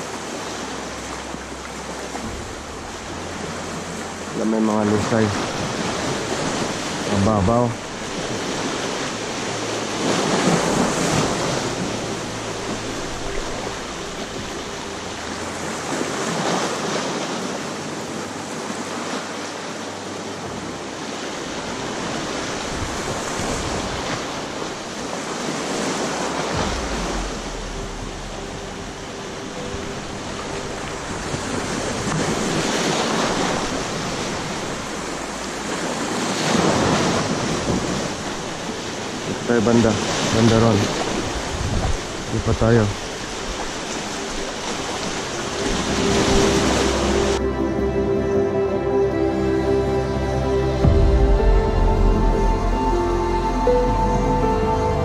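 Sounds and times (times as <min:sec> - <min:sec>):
waves washing over rocky shore: 0:00.0 - 0:47.4
wind buffeting microphone: 0:21.7 - 0:47.4.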